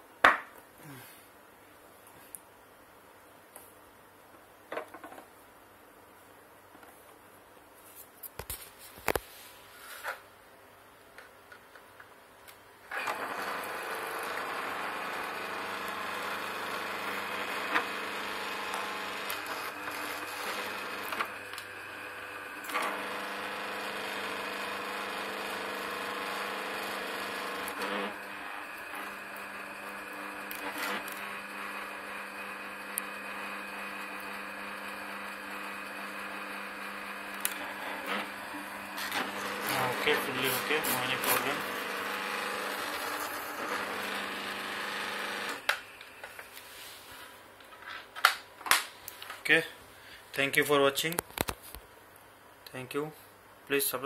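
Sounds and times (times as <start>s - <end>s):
grinder motor humming: 12.9s - 46.2s.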